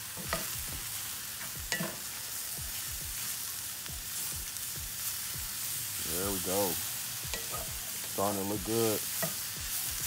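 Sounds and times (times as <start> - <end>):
mushrooms sizzling in oil: 0.0 - 10.0
spoon knocking against pan: 1.7 - 2.0.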